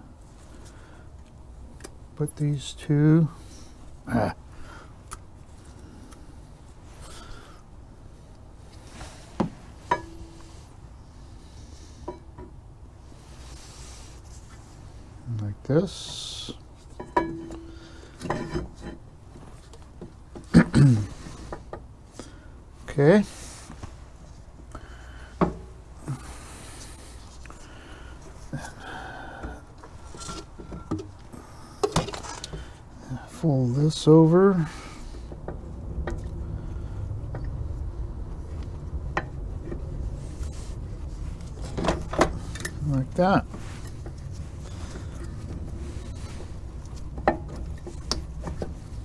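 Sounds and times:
metallic clinks of brake parts: 9.8 - 10.5
rubbing and scraping: 37.5 - 49.0.

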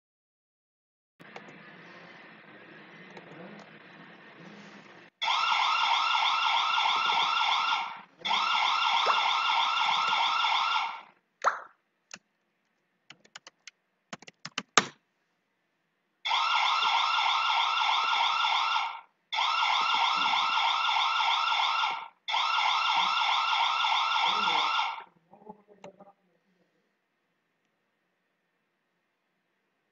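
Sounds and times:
warbling alarm siren: 5.2 - 11.2, 16.2 - 25.1.

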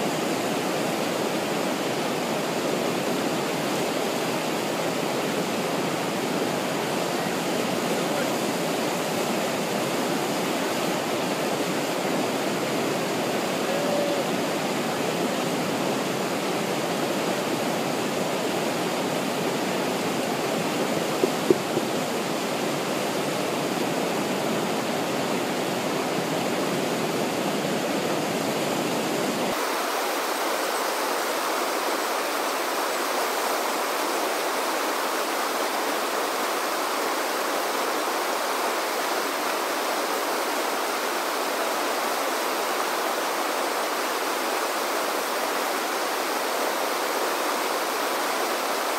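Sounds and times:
river whitewater rushing: 0.0 - 48.9.

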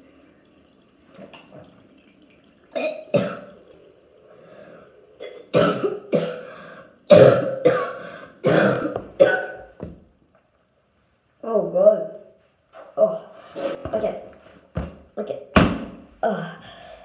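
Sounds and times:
boy coughing: 5.2 - 6.5, 7.1 - 9.6.

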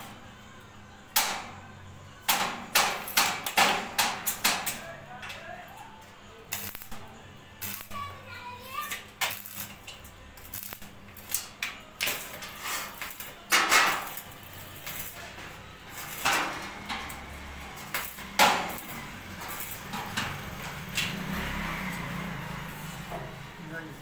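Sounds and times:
crackling welding arc: 6.5 - 21.1.

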